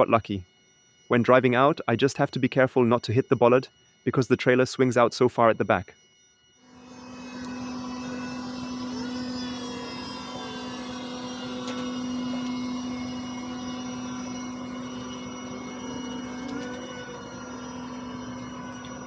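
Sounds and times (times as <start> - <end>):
electric drive whine: 0.0 - 19.0
electric truck humming past: 6.6 - 19.0.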